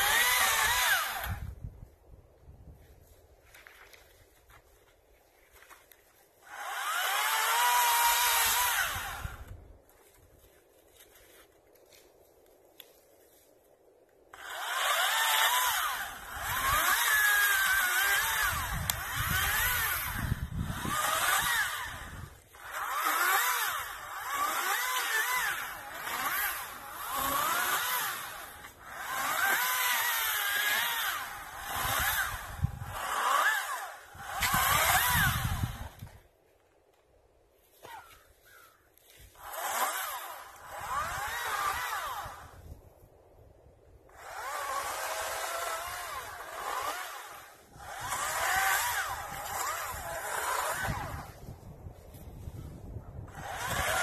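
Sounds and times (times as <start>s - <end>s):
battery chainsaw motor whine: 0.0s - 1.7s, 6.4s - 10.2s, 14.3s - 36.3s, 37.7s - 42.8s, 44.1s - 54.0s.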